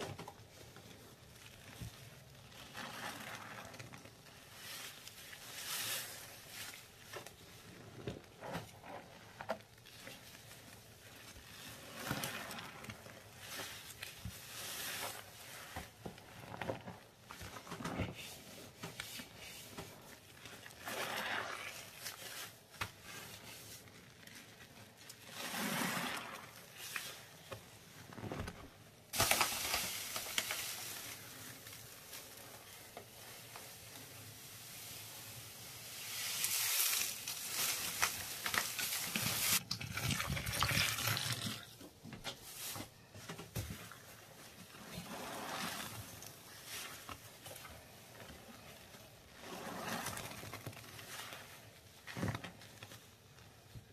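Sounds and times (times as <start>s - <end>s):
wet sponge squelches: 0.0s - 28.7s, 29.6s - 53.9s
powder pouring hiss: 29.2s - 39.6s.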